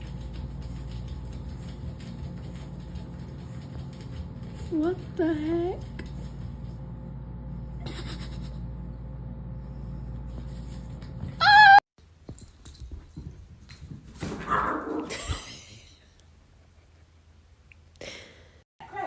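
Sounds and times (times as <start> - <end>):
low steady hum: 0.0 - 14.4
puppy whining: 11.4 - 11.8
small dog yapping: 11.4 - 11.8.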